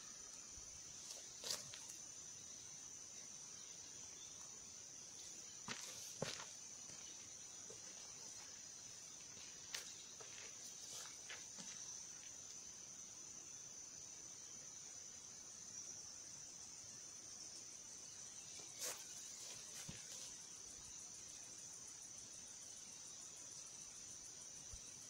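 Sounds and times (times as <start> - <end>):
insects chirring: 0.0 - 25.0
steps rustling in grass: 9.3 - 11.8.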